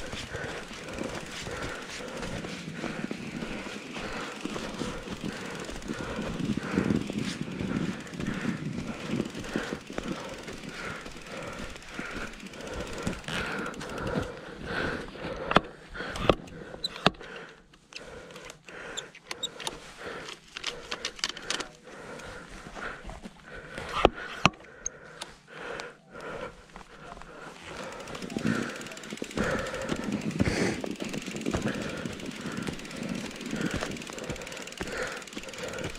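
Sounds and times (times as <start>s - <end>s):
bike rushing through snow: 0.0s - 14.0s, 27.6s - 35.9s
bike rattling clicks and knocks: 0.0s - 25.4s, 27.5s - 35.9s.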